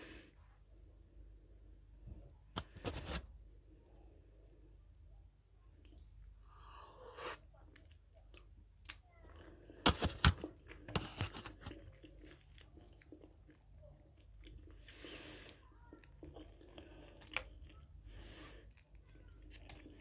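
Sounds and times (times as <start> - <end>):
chewing shrimp: 7.3 - 20.0.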